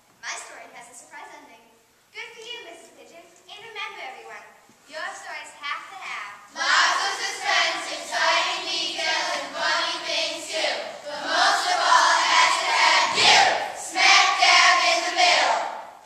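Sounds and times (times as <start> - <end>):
group of young voices singing: 6.5 - 16.0.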